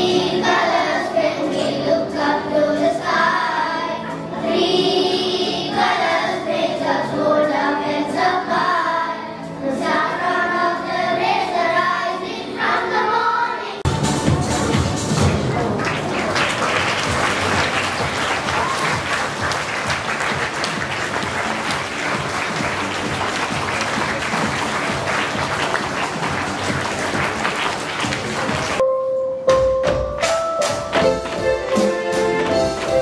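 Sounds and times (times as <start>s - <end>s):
recorded dance music: 13.9s - 16.2s
audience applause: 15.2s - 28.8s.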